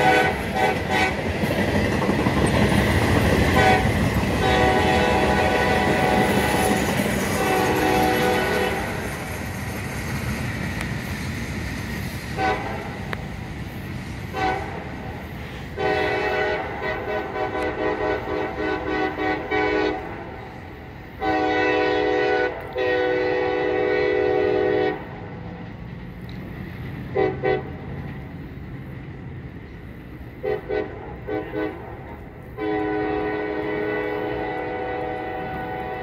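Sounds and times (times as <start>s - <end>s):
locomotive air horn blasts: 0.0s - 1.4s, 3.4s - 9.1s, 12.4s - 13.0s, 14.3s - 20.6s, 21.2s - 25.2s, 27.1s - 27.9s, 30.4s - 36.0s
boxcars rumbling: 0.0s - 36.0s.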